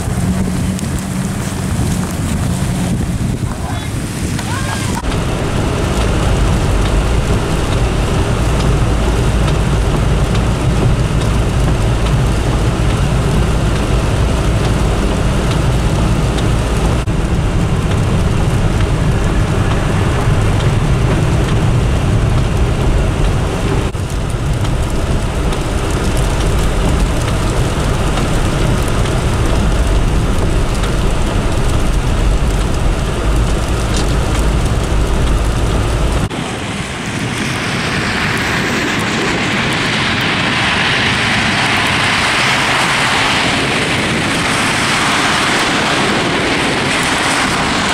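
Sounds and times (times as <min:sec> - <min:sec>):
highway traffic rumble: 0:00.0 - 0:47.9
wind: 0:00.0 - 0:47.9.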